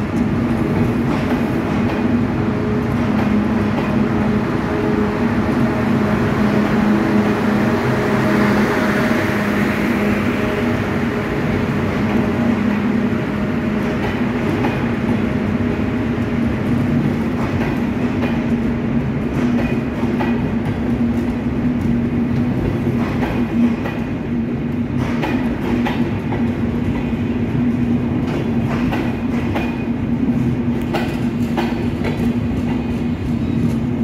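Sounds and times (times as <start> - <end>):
train coaches rumbling: 0.0 - 34.0.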